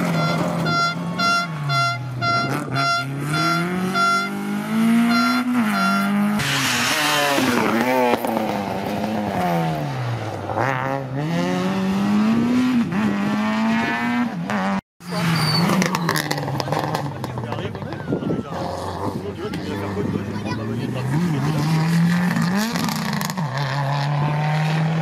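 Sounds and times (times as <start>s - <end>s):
short high beeps: 0.0s - 6.2s
rally car engines revving: 0.0s - 25.0s.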